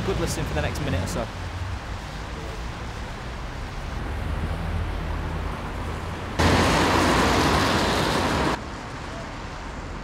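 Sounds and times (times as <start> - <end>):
bright wash of street noise: 0.0 - 10.0
traffic rumble: 0.0 - 10.0.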